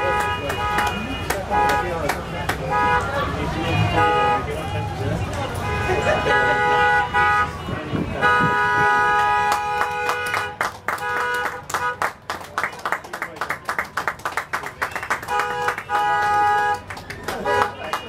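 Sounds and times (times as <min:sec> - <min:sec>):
crowd clapping: 0:00.0 - 0:03.2, 0:09.0 - 0:18.0
car horns blasting: 0:00.0 - 0:04.8, 0:05.4 - 0:12.2, 0:15.0 - 0:18.0.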